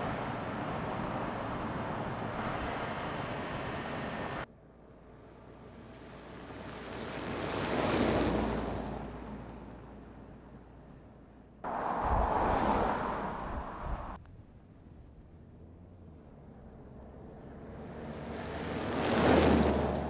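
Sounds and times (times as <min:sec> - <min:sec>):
road and wind noise: 0:00.0 - 0:20.0
car driving past: 0:11.6 - 0:14.2.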